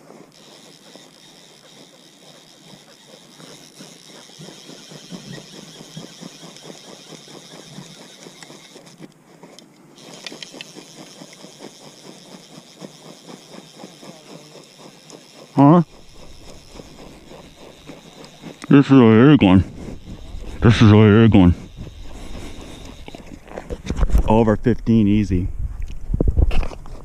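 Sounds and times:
fly reel drag buzzing: 0.0 - 24.4.

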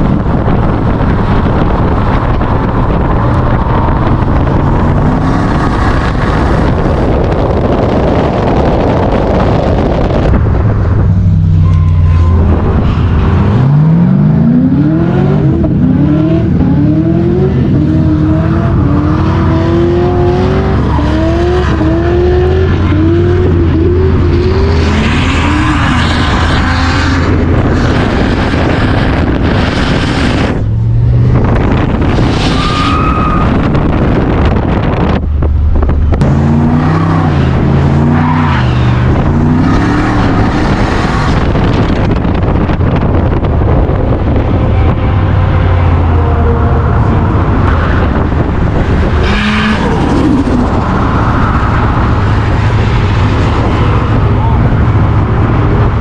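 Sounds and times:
car engine revving: 0.0 - 56.0
tyre squeal: 11.6 - 13.0, 32.2 - 33.7.

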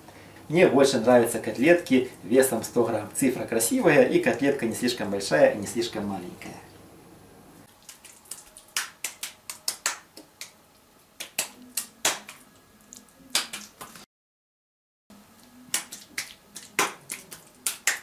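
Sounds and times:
wet hands slapping minced meat: 7.7 - 10.6, 11.2 - 14.1, 15.4 - 18.0.

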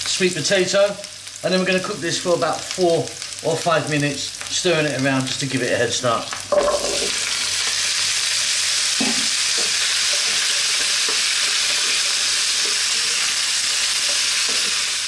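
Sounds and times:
vegetables sizzling in oil: 0.0 - 15.0
spatula scraping pan: 9.0 - 15.0.

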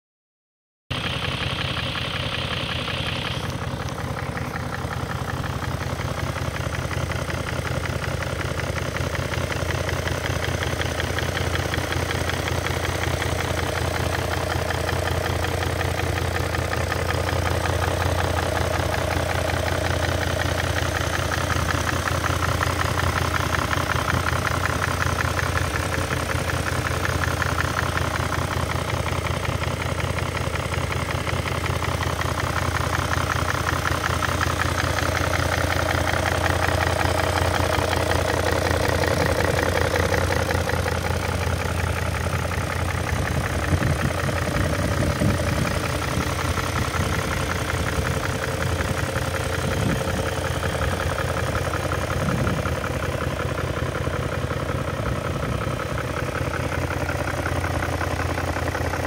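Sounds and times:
car engine idling: 0.9 - 59.0.

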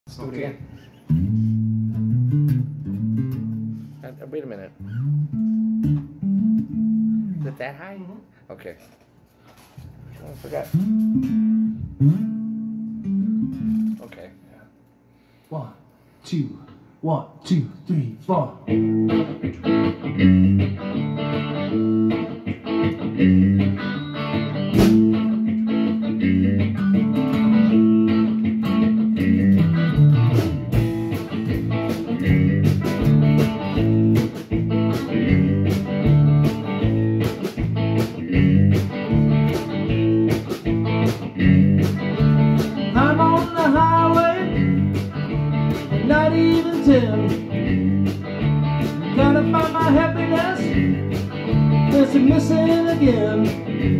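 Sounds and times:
band playing over steady beat: 5.1 - 7.6, 10.6 - 14.2, 18.8 - 53.9
lead line with bending notes: 10.7 - 14.0.

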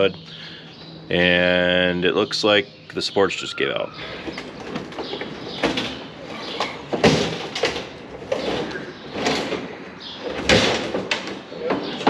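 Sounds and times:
truck hood clunking and scraping: 4.1 - 12.0.

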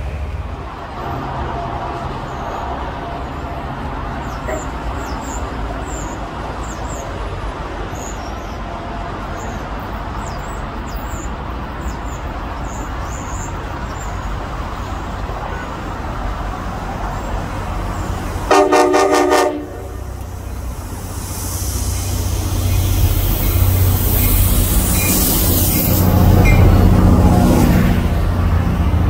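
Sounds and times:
locomotive engine rumble: 0.0 - 29.0
rail and traffic noise: 0.0 - 29.0
train horn blast: 18.5 - 20.2.

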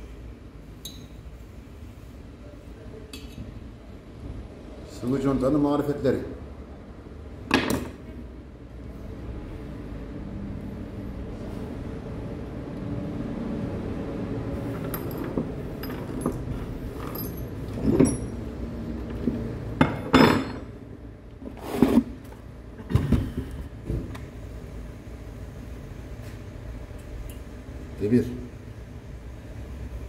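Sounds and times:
metal parts clinking: 14.6 - 18.4.

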